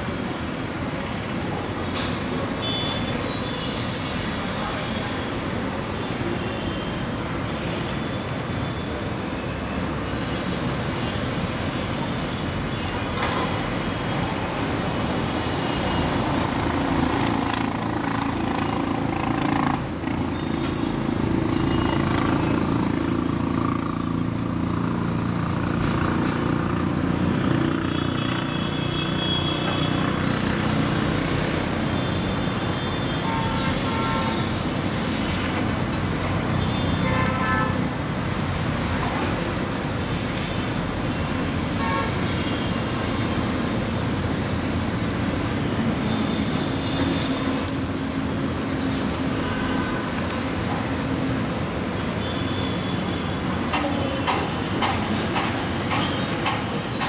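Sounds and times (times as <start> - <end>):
distant city traffic: 0.0 - 57.0
faint vehicle horns: 32.9 - 34.5, 36.6 - 37.8, 41.8 - 42.6.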